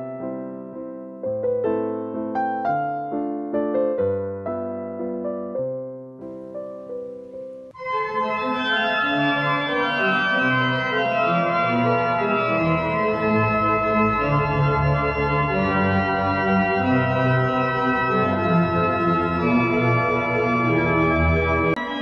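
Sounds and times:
piano music: 0.0s - 22.0s
organ playing held chords: 7.7s - 22.0s.

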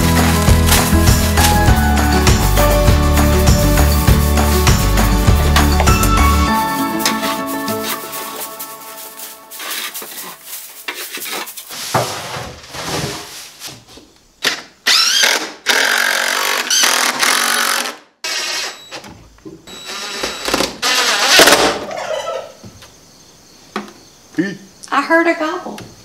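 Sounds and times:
cordless drill driving screws: 14.9s - 18.9s
turkey gobbling: 21.8s - 22.6s.

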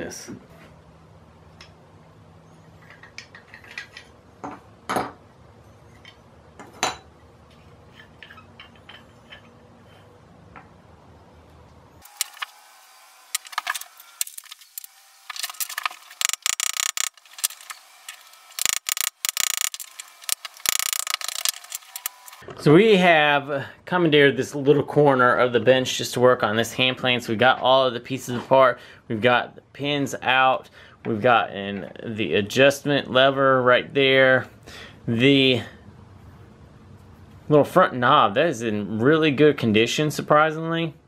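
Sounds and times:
metal plane parts clinking: 7.9s - 10.1s.

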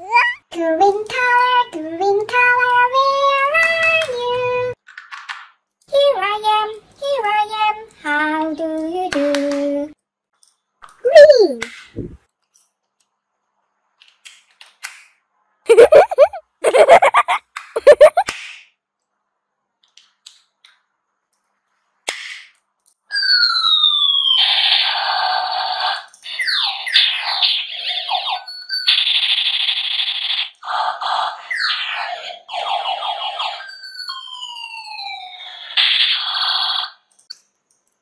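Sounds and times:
toy ray gun laser zaps: 24.4s - 34.4s, 35.0s - 37.1s.

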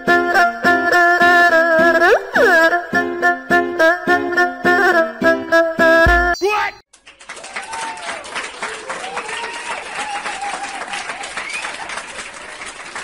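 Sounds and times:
crowd clapping: 6.9s - 13.0s
crowd cheering: 7.0s - 13.0s.

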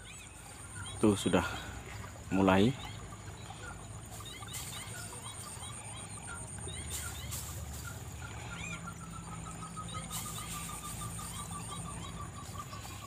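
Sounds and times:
short bird chirps: 4.2s - 13.0s.

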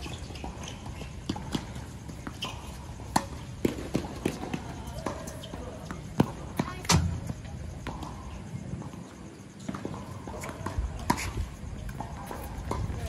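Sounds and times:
footsteps on hard court: 0.0s - 8.0s.

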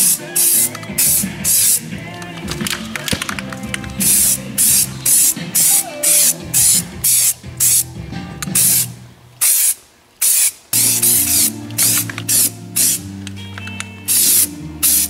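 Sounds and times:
spray gun hissing bursts: 0.0s - 1.8s, 4.0s - 7.8s, 8.6s - 13.0s, 14.1s - 15.0s
background music: 0.0s - 9.3s, 10.8s - 15.0s.

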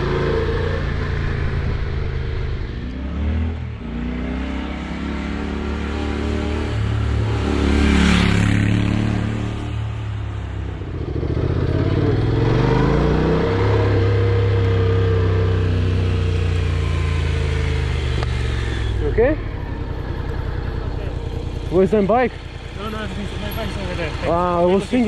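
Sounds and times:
motorcycle engine revving: 0.0s - 25.0s.

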